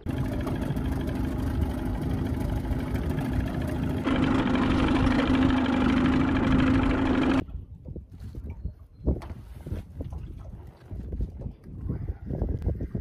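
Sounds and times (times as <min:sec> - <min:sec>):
boat motor droning: 0:00.0 - 0:07.4.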